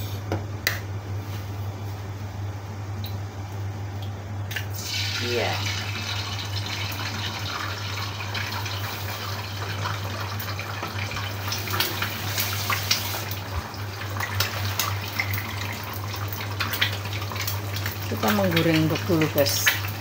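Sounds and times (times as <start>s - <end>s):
egg sizzling in hot oil: 4.7s - 20.0s.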